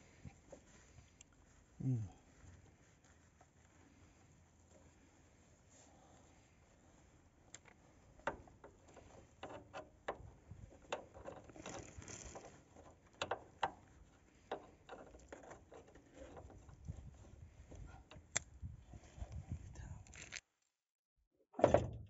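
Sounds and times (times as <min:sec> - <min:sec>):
faint rustling: 0:00.0 - 0:20.4
plastic rope clicks: 0:07.5 - 0:13.8, 0:20.0 - 0:20.4.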